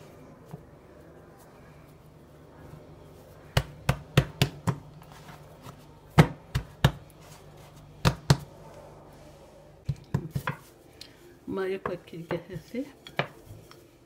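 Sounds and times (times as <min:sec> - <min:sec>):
hands patting dough on wooden board: 0:03.5 - 0:08.5, 0:09.8 - 0:10.7.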